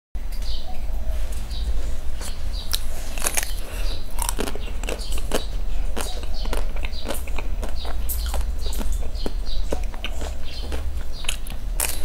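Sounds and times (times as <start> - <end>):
low hum: 0.2 - 12.0
ice cream shell crunching: 2.7 - 12.0.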